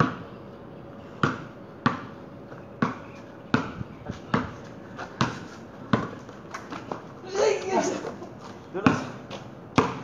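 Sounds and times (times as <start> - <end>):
basketball bouncing on concrete: 1.2 - 2.2, 2.8 - 7.1, 8.8 - 10.0.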